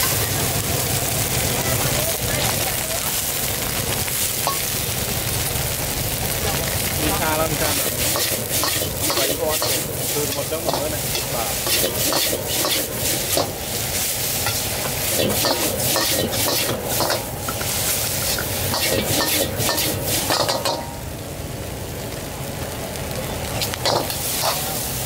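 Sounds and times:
food sizzling: 0:00.0 - 0:25.0
metal spatula scraping wok: 0:04.4 - 0:04.8, 0:07.6 - 0:21.0, 0:23.8 - 0:25.0.

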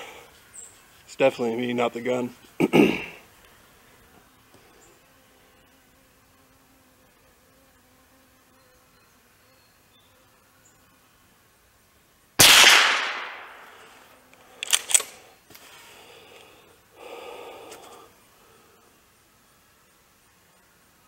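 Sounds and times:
rifle shot: 0:12.4 - 0:13.8
brief rustle: 0:14.4 - 0:15.8.

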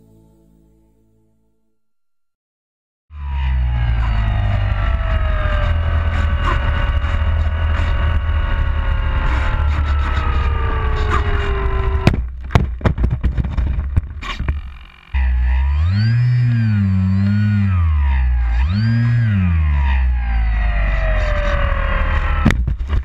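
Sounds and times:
model plane motor whine: 0:03.2 - 0:12.2, 0:14.3 - 0:22.6
wind rumble: 0:03.2 - 0:16.0
plane skidding on gravel: 0:03.3 - 0:12.1.

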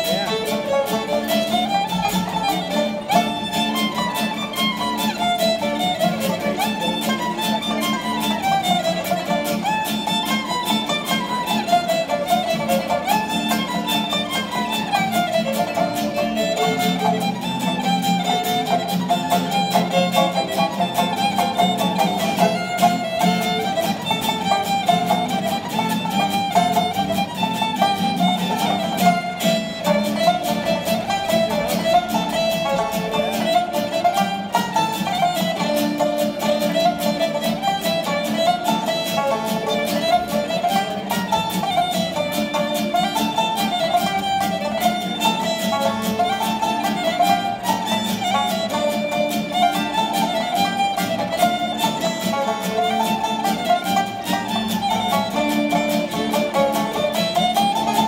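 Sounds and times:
fiddle melody: 0:00.0 - 0:58.0
plucked banjo: 0:00.0 - 0:58.0
strummed acoustic guitar: 0:00.0 - 0:58.0.

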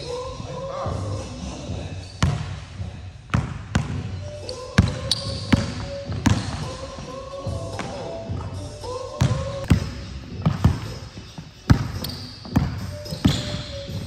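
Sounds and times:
basketball bouncing on wooden floor: 0:02.2 - 0:02.6, 0:03.3 - 0:04.1, 0:04.8 - 0:06.7, 0:09.2 - 0:11.0, 0:11.7 - 0:14.0.

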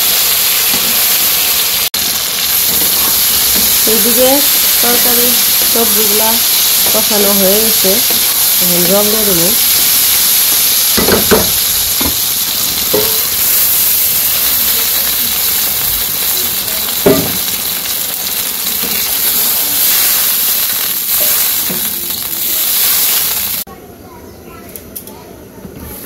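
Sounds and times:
vegetables sizzling in a wok: 0:00.0 - 0:23.7
wooden spatula knocking pan: 0:11.0 - 0:12.2, 0:17.0 - 0:17.4.

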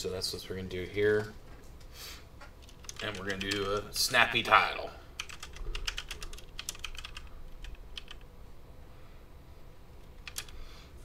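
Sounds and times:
typing on computer keyboard: 0:02.6 - 0:03.9, 0:05.2 - 0:08.3, 0:10.1 - 0:10.6.

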